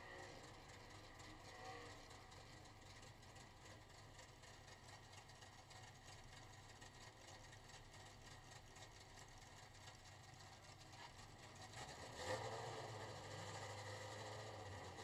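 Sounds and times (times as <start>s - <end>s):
race car engine idling: 0.0s - 11.8s.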